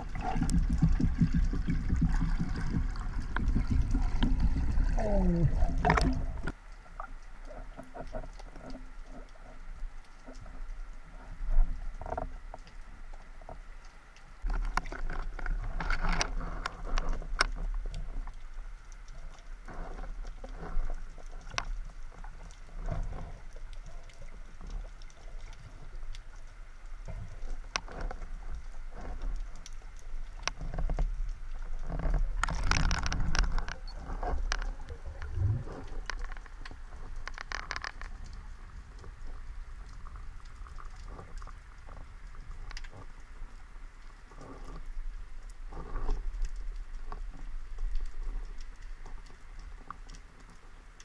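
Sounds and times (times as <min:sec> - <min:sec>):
sharp underwater clicks and crackles: 0:00.0 - 0:51.0
water swishing and rushing: 0:00.0 - 0:51.0
low rumble: 0:33.8 - 0:36.2.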